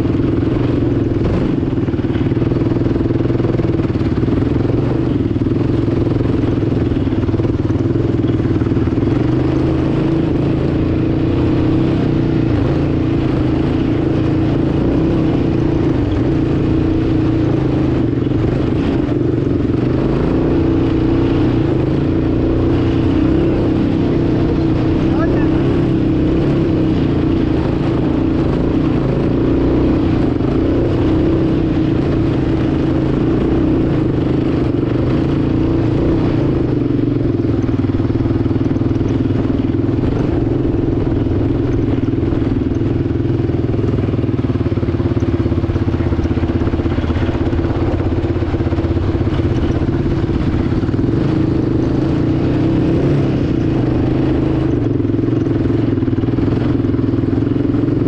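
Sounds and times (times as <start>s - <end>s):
atv engine running: 0.0s - 58.0s.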